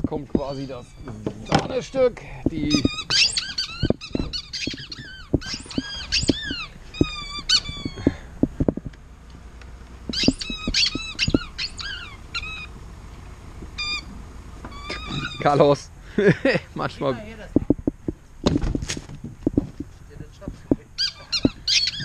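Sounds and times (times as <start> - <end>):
squeaky toy squeaking: 0.3 - 1.8, 2.6 - 8.2, 10.1 - 12.7, 14.7 - 15.6, 21.0 - 22.0.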